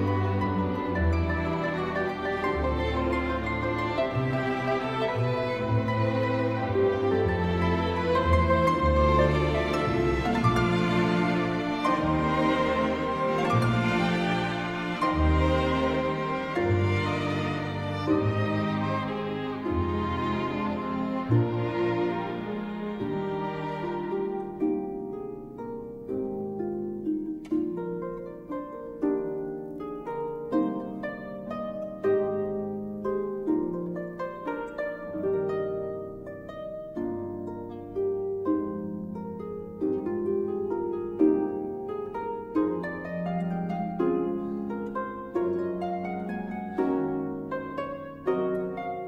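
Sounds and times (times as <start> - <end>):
harp playing plucked notes: 0.0 - 49.0.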